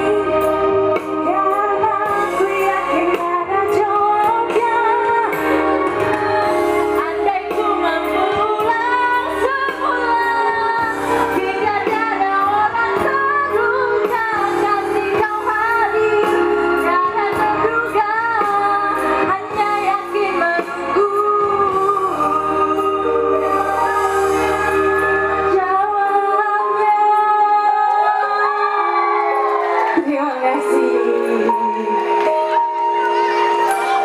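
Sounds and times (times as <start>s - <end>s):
live band playing: 0.0s - 34.0s
woman singing: 0.0s - 34.0s.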